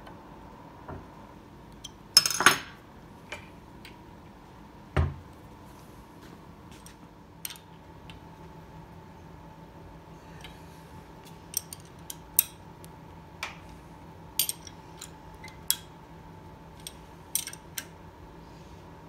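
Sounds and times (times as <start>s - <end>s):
metal tools clinking on workbench: 14.4s - 15.9s, 16.8s - 17.8s.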